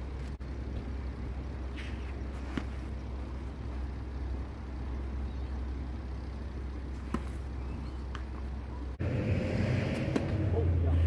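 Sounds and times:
low outdoor rumble: 0.0 - 11.0
tennis ball strikes: 2.4 - 2.9, 6.9 - 8.6.

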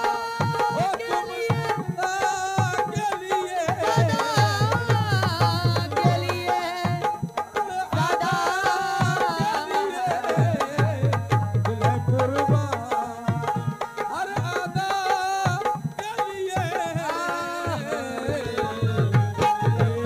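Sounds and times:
woman singing: 0.0 - 7.3
harmonium-like melody: 0.0 - 20.0
tabla playing: 0.0 - 20.0.

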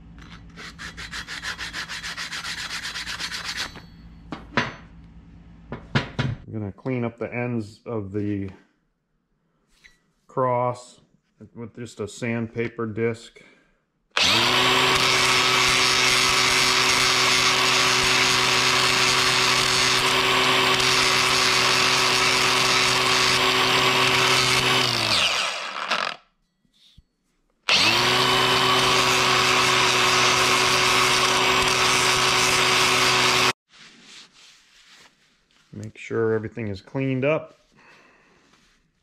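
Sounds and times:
power tool sanding metal: 14.2 - 26.2, 27.7 - 33.6.

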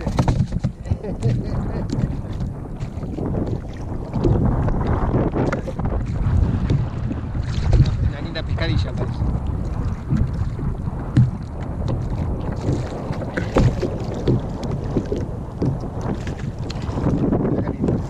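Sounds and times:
sharp knocks: 0.0 - 1.0
water slapping against kayak hull: 0.0 - 18.0
wind buffeting microphone: 0.0 - 18.0.

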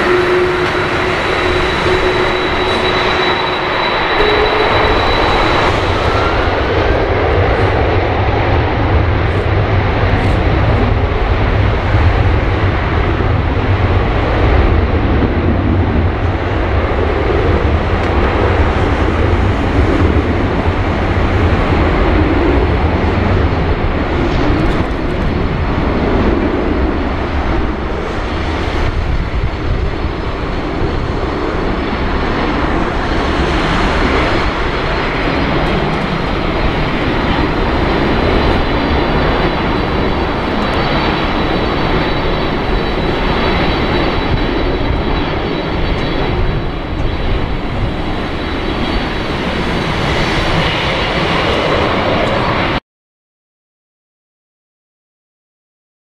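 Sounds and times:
faint high whine: 0.0 - 7.8
jet engine roar: 0.0 - 52.8.

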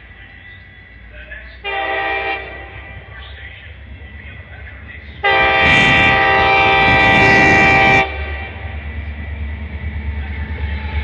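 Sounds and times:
train rumbling: 0.0 - 11.0
train air horn chord: 1.6 - 3.0, 5.2 - 8.8.

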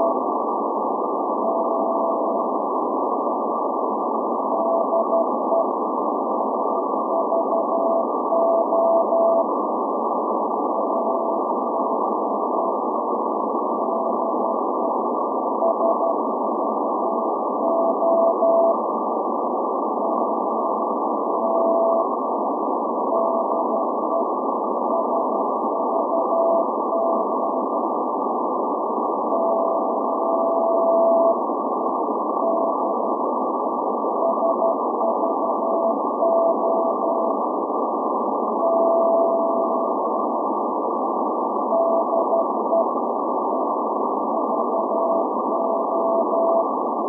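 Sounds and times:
radio static hiss: 0.0 - 47.0
morse code tone: 38.6 - 39.9, 41.7 - 42.9, 44.4 - 46.7.

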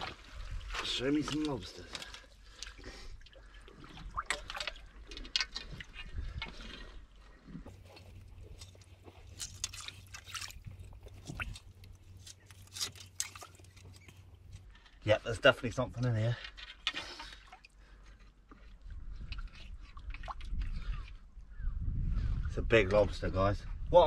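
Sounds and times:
small water splashes: 0.0 - 14.3, 17.0 - 18.0, 19.3 - 21.0
water sloshing and trickling: 0.0 - 21.4.

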